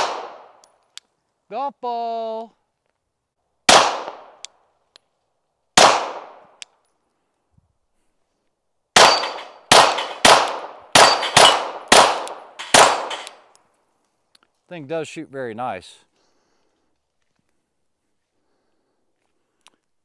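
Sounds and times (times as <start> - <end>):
pistol shots: 0.0 - 0.6, 3.7 - 4.5, 5.8 - 6.5, 9.0 - 13.4.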